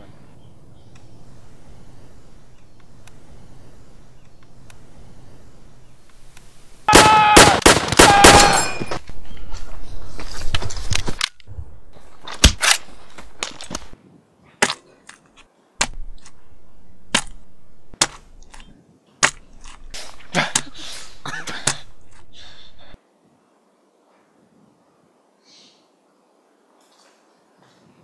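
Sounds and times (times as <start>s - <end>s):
gunshots: 6.9s - 9.0s.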